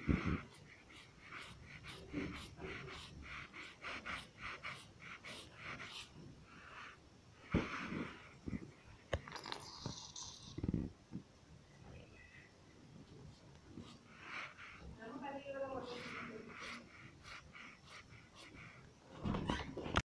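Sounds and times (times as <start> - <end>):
squelchy paint brush dabs: 9.2 - 10.6, 15.5 - 18.5.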